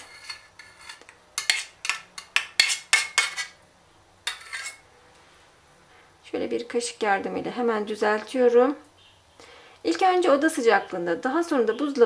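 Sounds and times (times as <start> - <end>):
utensil scraping and clinking pot: 0.0 - 3.6, 4.2 - 4.8.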